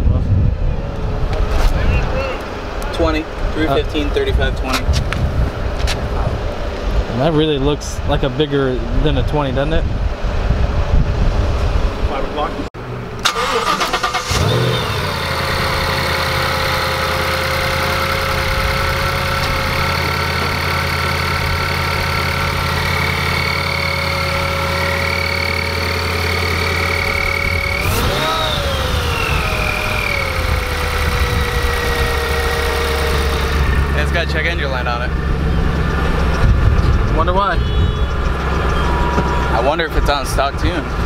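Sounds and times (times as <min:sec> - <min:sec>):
engine revving: 0:13.2 - 0:41.0
car engine idling with supercharger whine: 0:14.3 - 0:40.9.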